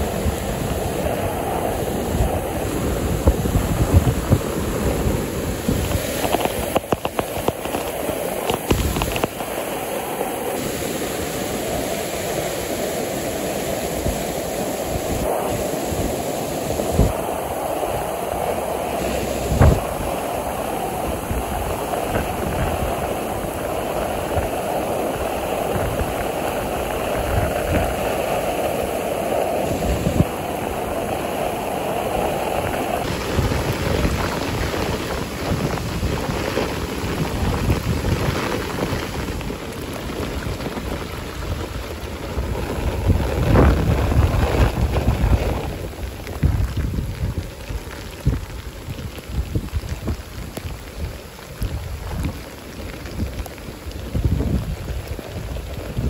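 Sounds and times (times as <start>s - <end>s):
stream rushing over rocks: 0.0s - 56.0s
low thumps: 19.1s - 20.1s.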